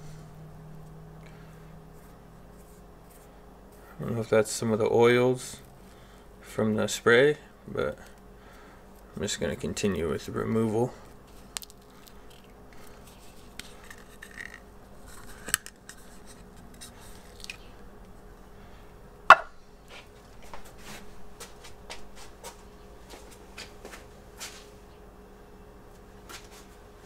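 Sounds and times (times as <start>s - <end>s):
mold knocking on bench: 19.3s - 19.5s.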